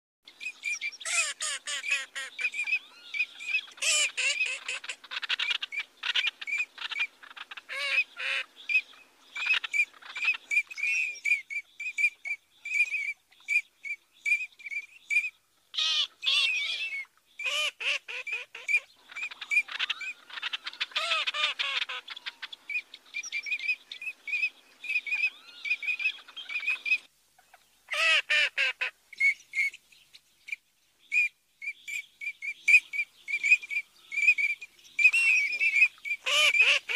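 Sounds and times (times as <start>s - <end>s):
ducks whistling calls: 0.4s - 27.1s, 31.1s - 36.9s.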